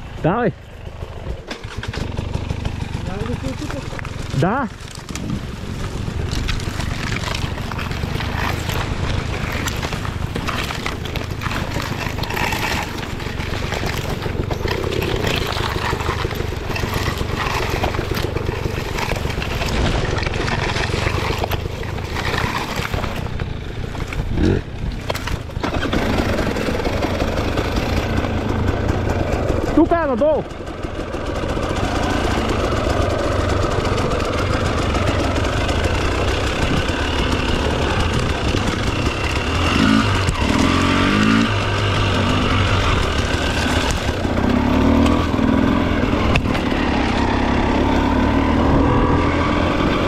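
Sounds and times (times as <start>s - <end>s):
motorcycle engine running: 0.0s - 50.0s
engine revving: 25.6s - 30.3s, 31.0s - 50.0s.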